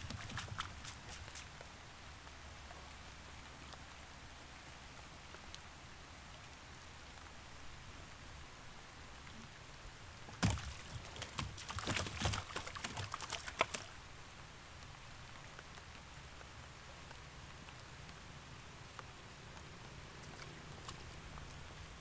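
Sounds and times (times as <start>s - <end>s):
rain falling on water: 0.0s - 22.0s
fish flopping in a boat: 10.4s - 13.9s.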